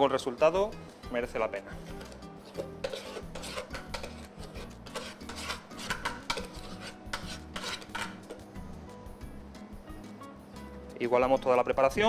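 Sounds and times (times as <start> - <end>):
spatula scraping metal bowl: 1.7 - 8.4.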